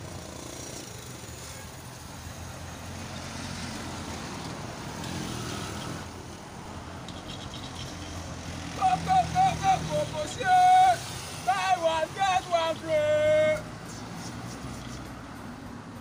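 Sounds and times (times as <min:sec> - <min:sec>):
car passing by: 0:02.8 - 0:06.2.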